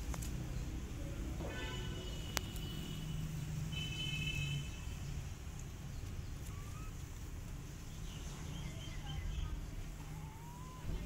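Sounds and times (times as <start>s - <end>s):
faint small calls: 6.0s - 11.0s.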